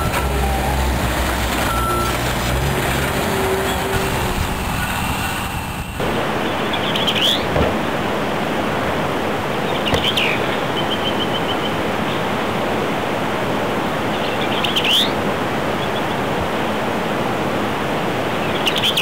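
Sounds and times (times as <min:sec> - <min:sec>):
steady rushing hiss: 0:00.0 - 0:06.7.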